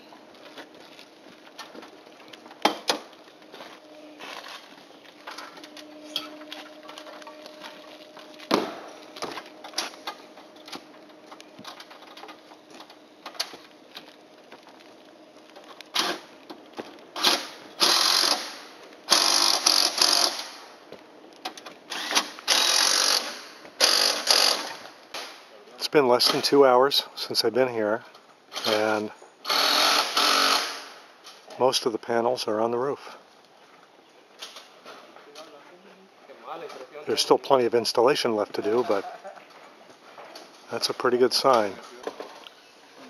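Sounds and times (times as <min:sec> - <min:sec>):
cordless drill driving fasteners: 0:17.2 - 0:20.7, 0:21.9 - 0:24.9, 0:29.4 - 0:31.0.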